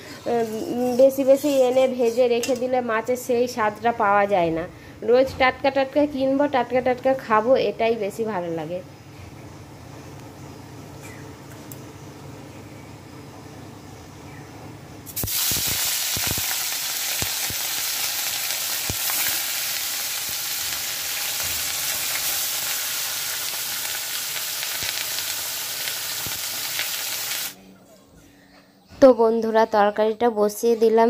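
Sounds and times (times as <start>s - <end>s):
fish sizzling in hot oil: 15.1s - 27.6s.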